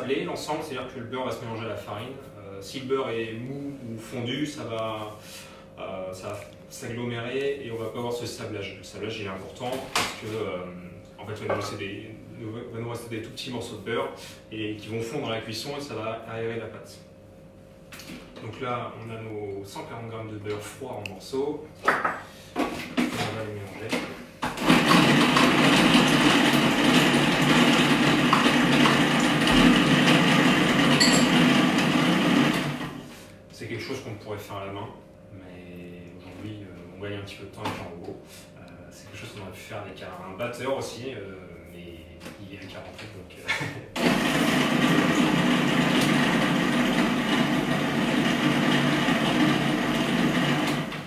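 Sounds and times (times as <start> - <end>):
food processor running: 24.4 - 33.2, 44.0 - 51.0.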